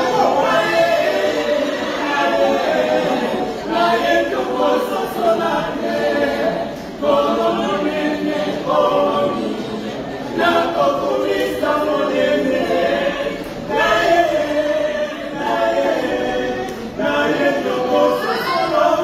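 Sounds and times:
church choir singing: 0.0s - 19.0s.

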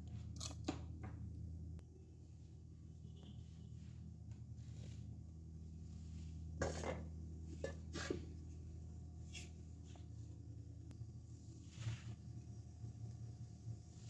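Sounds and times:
scrape on countertop: 6.0s - 8.4s, 11.6s - 12.3s.

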